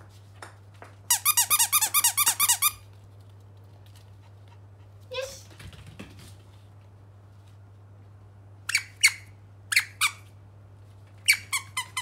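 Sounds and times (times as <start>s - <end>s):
dog toy squeaks: 1.1s - 2.8s, 8.7s - 10.2s, 11.2s - 12.0s.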